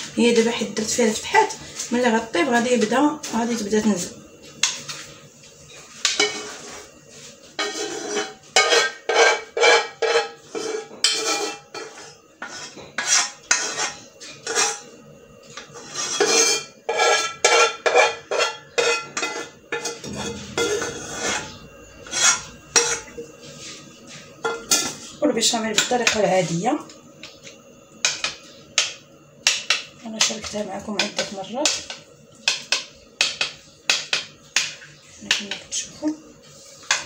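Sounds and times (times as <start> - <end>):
metal spoon scraping saucepan: 6.0 - 6.9, 7.5 - 14.9, 15.6 - 23.3.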